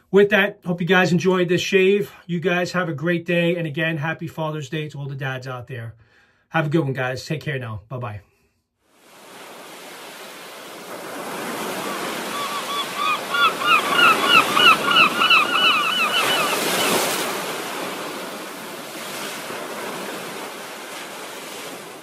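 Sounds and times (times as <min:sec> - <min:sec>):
ocean surf washing: 0:08.9 - 0:22.0
bird calling in short notes: 0:11.8 - 0:17.0.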